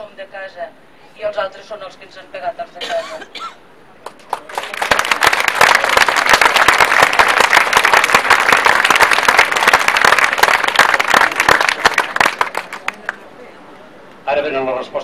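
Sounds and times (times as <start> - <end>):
crowd applauding: 4.0 - 13.2.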